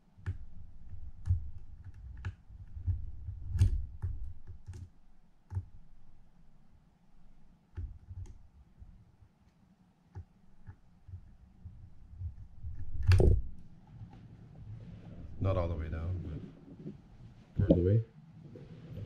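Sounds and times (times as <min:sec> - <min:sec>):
low rumble of handling: 0:11.3 - 0:19.0.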